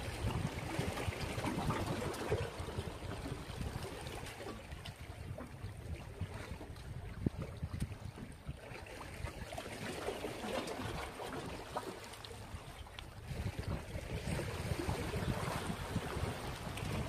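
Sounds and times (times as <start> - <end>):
wind buffeting microphone: 0.0 - 17.0
waves washing against rocks: 13.2 - 17.0.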